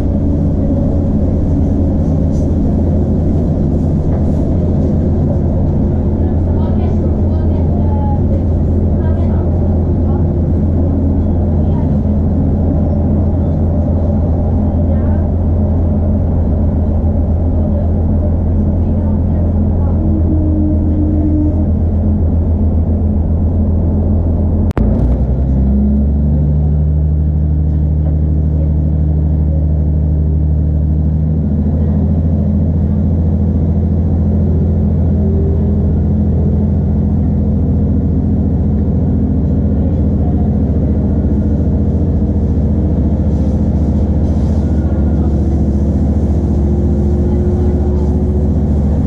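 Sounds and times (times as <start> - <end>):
diesel engine low hum: 0.0 - 49.0.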